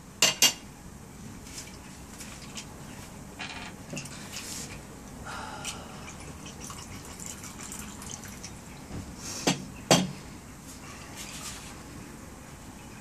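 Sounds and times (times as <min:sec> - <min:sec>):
liquid pouring over ice: 0:06.2 - 0:08.7.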